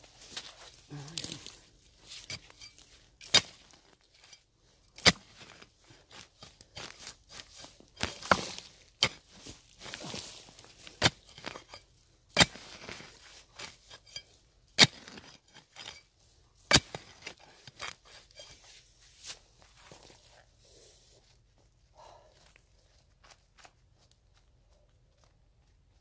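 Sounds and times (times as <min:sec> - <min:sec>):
pick-mattock striking ground: 0:00.0 - 0:20.0
soil and dry stalks scraping: 0:00.0 - 0:26.0.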